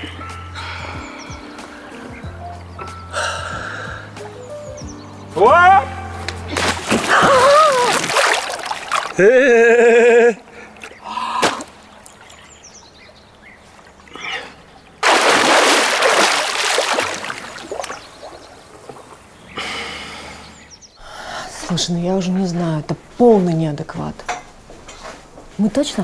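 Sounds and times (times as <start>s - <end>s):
water splashing in a pool: 6.5s - 12.6s, 13.4s - 19.3s.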